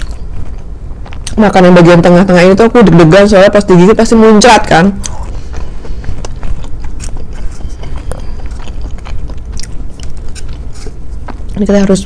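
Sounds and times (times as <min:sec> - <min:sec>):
chewing crunches: 0:00.0 - 0:01.5, 0:05.0 - 0:11.8
biting into toast: 0:05.0 - 0:11.5.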